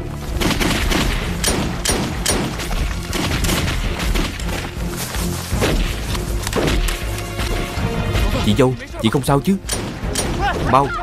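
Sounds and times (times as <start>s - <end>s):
rapid gunfire: 0.4s - 4.6s.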